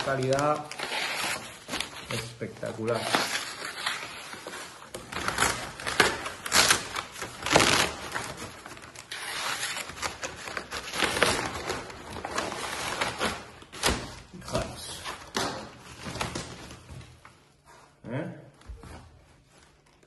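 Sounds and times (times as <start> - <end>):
cardboard being cut and torn: 0.0 - 2.2, 2.8 - 14.1.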